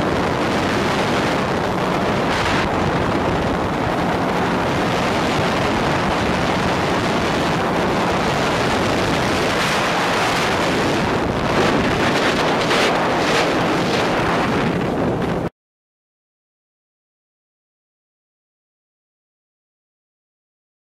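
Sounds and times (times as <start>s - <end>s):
boat engine drone: 0.0s - 15.5s
water rushing past hull: 0.0s - 15.5s
wind buffeting microphone: 0.0s - 15.5s.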